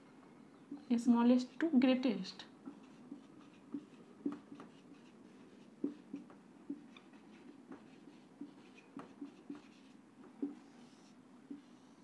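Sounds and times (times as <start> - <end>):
marker writing on whiteboard: 2.5 - 12.0.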